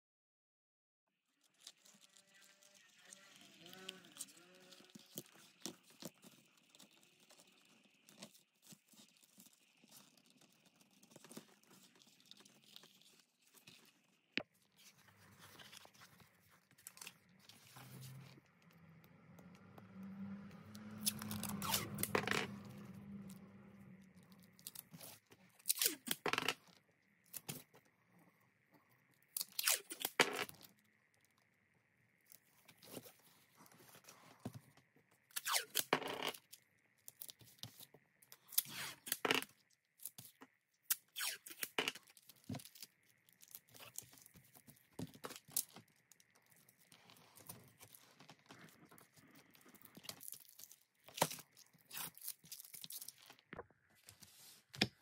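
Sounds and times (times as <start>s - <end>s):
blade cutting sheet material: 20.9s - 22.8s.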